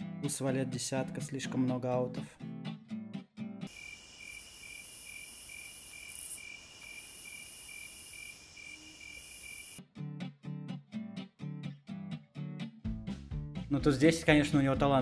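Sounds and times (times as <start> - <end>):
faint hiss: 3.7 - 9.8.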